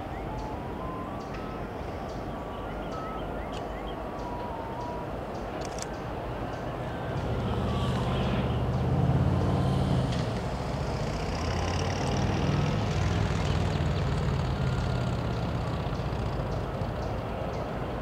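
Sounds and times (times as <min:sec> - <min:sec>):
heavy engine rumbling: 0:06.4 - 0:18.0.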